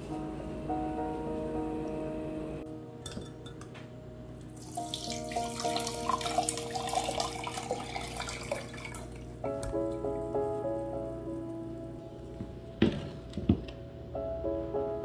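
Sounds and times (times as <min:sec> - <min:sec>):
syrup trickling into a jug: 0:04.6 - 0:09.1.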